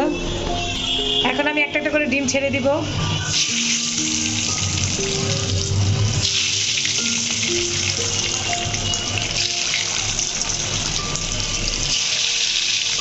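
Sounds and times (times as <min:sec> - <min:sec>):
background music: 0:00.0 - 0:13.0
eggs sizzling in hot oil: 0:03.3 - 0:13.0.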